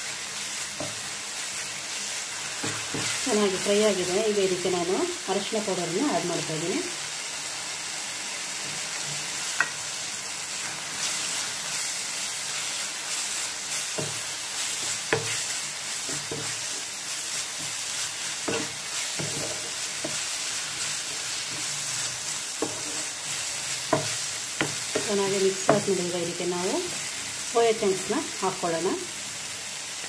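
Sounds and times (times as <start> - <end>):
masala sizzling in a frying pan: 0.0 - 30.0
wooden spatula stirring: 10.9 - 25.9.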